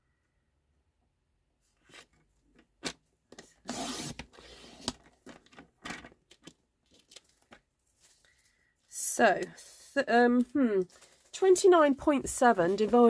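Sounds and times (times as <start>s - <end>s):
paper sliding rub: 3.7s - 4.9s, 9.4s - 10.0s.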